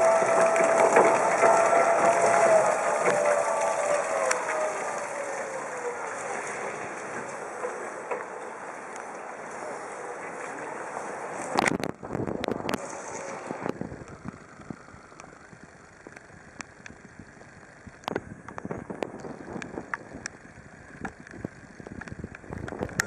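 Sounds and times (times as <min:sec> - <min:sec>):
tyres hissing through water: 0:00.0 - 0:11.6.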